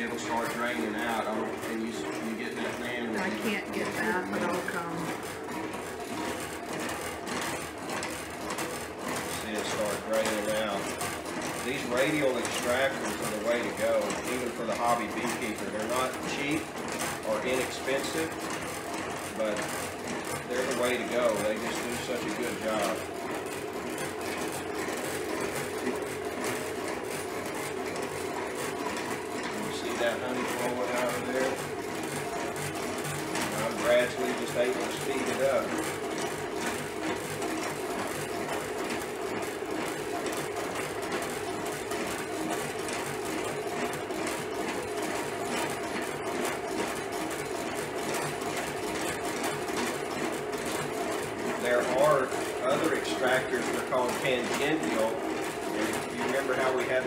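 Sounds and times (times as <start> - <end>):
honey extractor whirring: 0.0 - 57.0.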